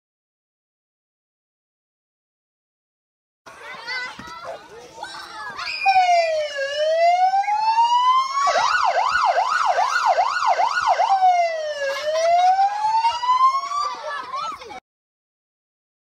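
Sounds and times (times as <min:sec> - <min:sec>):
police siren wailing and yelping: 0:05.8 - 0:14.1.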